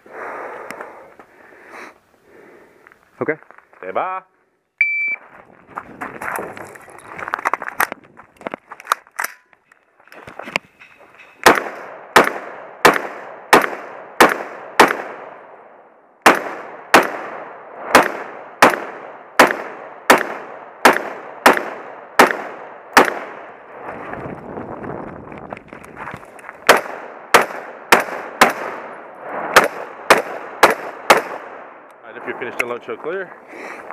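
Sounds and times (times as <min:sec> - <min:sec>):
rifle gunshots with echo: 0:11.4 - 0:15.6, 0:16.2 - 0:23.7, 0:26.7 - 0:32.4.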